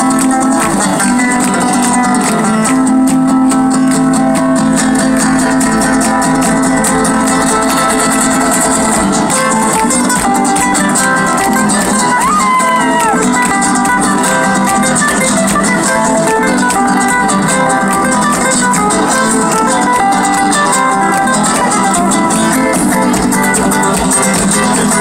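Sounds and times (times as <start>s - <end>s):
flamenco acoustic guitar: 0.0s - 25.0s.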